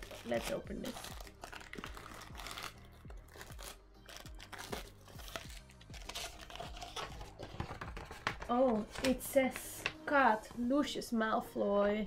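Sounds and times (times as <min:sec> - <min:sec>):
plastic wrapping crinkling and tearing: 0:00.0 - 0:09.2
soft background music with beat: 0:00.0 - 0:12.0.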